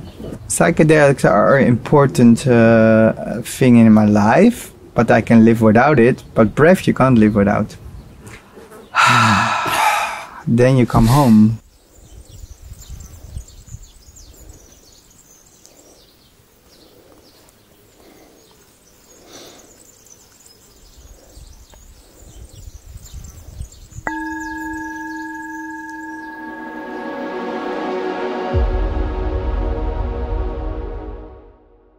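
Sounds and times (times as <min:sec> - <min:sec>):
low wind rumble on microphone: 0:11.6 - 0:14.7, 0:20.8 - 0:24.2
light high chirps: 0:24.0 - 0:27.9
bell-like chime ringing: 0:24.1 - 0:28.7.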